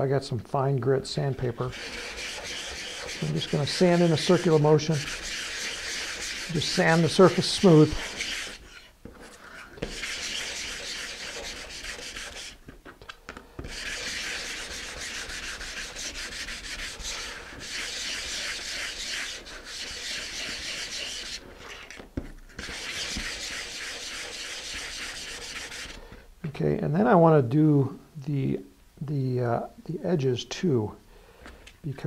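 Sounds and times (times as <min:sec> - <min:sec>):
sandpaper rubbing on wood: 0:01.6 - 0:12.6, 0:13.6 - 0:22.0, 0:22.6 - 0:26.0.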